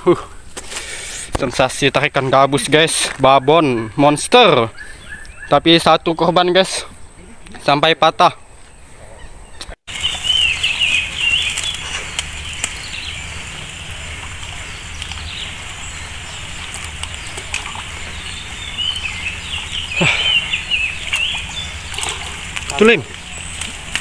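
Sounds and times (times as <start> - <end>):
outdoor hiss: 0.0 - 3.2, 9.9 - 24.0
birds chirping: 1.4 - 24.0
high-pitched chirr: 9.9 - 23.6.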